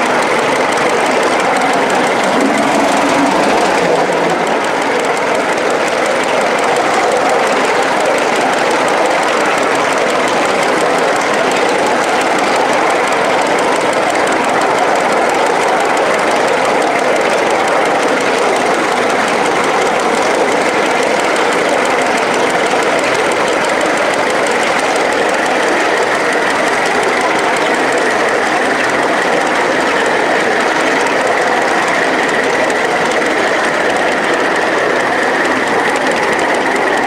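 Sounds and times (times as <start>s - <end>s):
model steam locomotive running: 0.0s - 37.0s.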